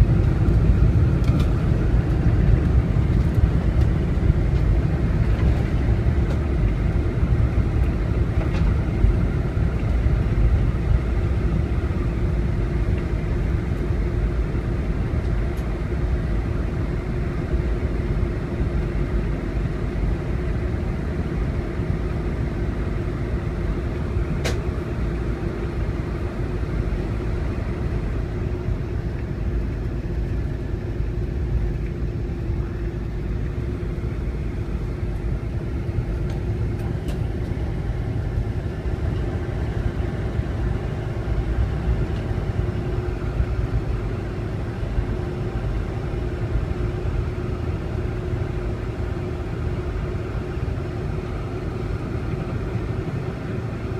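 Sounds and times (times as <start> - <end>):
aircraft cabin rumble: 0.0 - 53.9
steady hum: 0.0 - 53.9.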